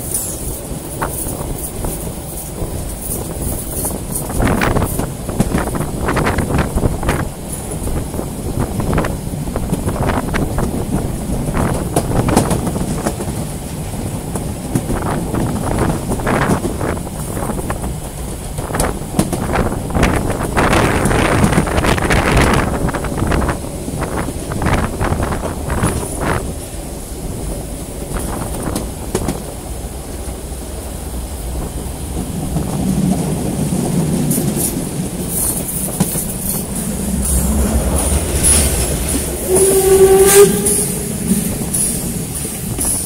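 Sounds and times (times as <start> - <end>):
steam hiss: 0.0 - 14.0, 34.2 - 43.0
steam locomotive rumble: 0.0 - 43.0
wind buffeting microphone: 0.0 - 43.0
steam exhaust chuffs: 35.2 - 43.0.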